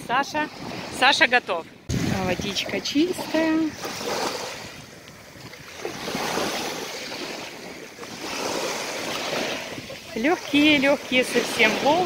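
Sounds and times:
gentle waves washing on sand: 0:00.0 - 0:12.0.

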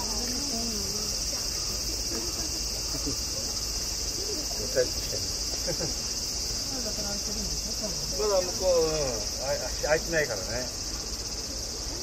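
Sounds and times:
cicadas buzzing: 0:00.0 - 0:12.0
people's voices: 0:00.0 - 0:12.0.

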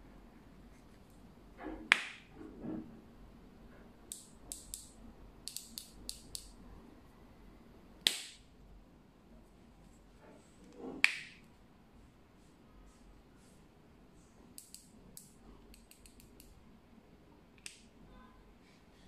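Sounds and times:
loud sharp snaps: 0:01.9 - 0:02.3, 0:08.0 - 0:08.5
scope turret detent clicks: 0:04.1 - 0:06.5.

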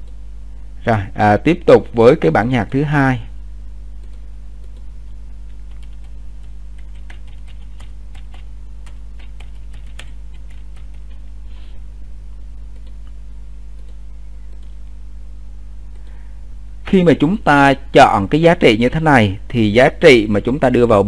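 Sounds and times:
low electrical hum: 0:00.0 - 0:21.0
computer keyboard typing: 0:04.0 - 0:11.3, 0:12.7 - 0:13.2, 0:13.8 - 0:14.8.

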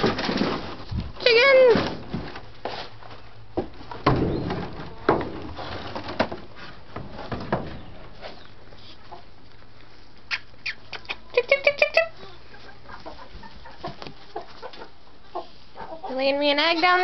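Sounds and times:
chickens clucking softly: 0:07.8 - 0:09.6, 0:10.2 - 0:16.5.

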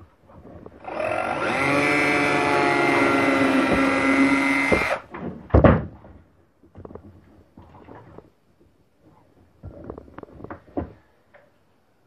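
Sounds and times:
cordless drill drilling wood: 0:00.8 - 0:05.1.

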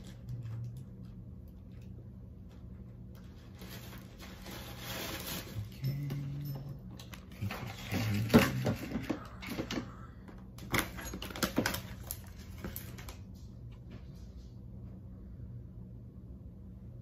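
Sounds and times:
faint low hum: 0:00.0 - 0:17.0
paper rustling: 0:03.2 - 0:05.7.

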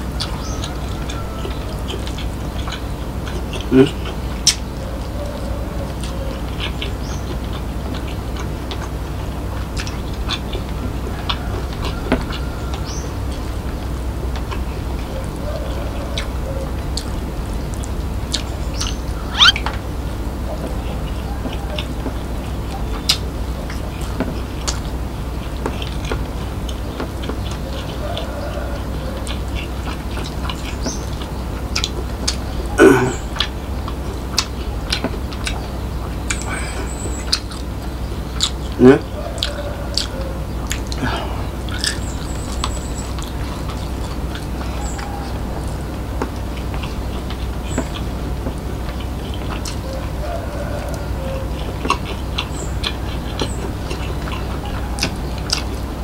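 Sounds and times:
person chewing: 0:00.0 - 0:04.6, 0:05.9 - 0:13.7, 0:15.9 - 0:19.8, 0:20.8 - 0:56.0
low hum: 0:00.0 - 0:56.0
wet mouth clicks: 0:17.8 - 0:19.6.

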